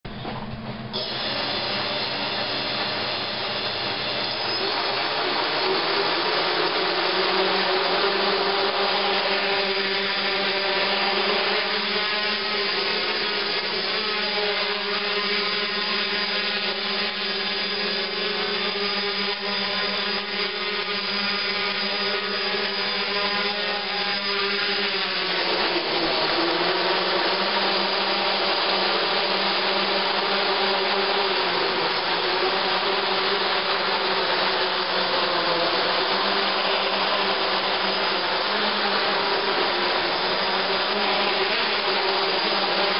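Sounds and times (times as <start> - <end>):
quadcopter motors whirring: 0.2 - 42.9.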